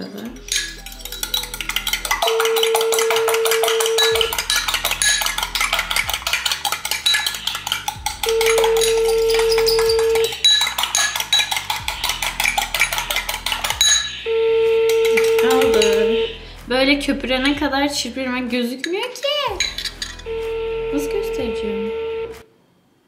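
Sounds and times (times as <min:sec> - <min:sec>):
spoon whisking in ceramic bowl: 0:00.0 - 0:14.2, 0:14.9 - 0:16.4
phone ringback tone: 0:14.3 - 0:16.3.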